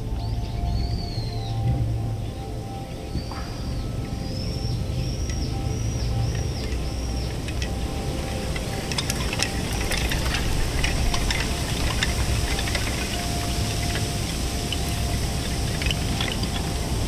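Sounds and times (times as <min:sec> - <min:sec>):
low rush of wind: 0:00.0 - 0:17.0
wooden plaques clattering: 0:06.1 - 0:17.0.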